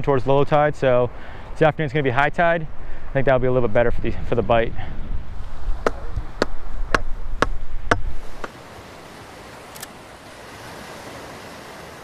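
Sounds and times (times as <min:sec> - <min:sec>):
surf and wind hiss: 0:00.0 - 0:12.0
sharp knocks: 0:05.8 - 0:08.5.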